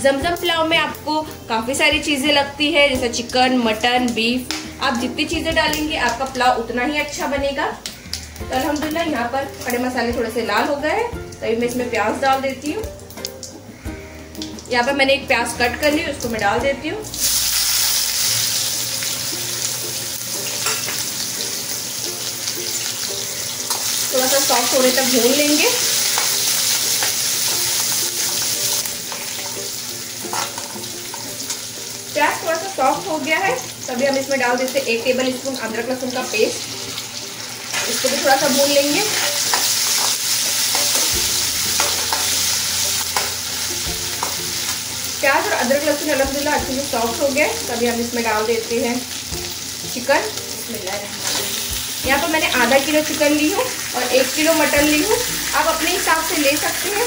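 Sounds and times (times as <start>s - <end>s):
onion sizzling in hot oil: 0.0s - 57.0s
spoon scraping pan: 25.3s - 28.4s, 30.3s - 31.2s, 38.9s - 43.4s.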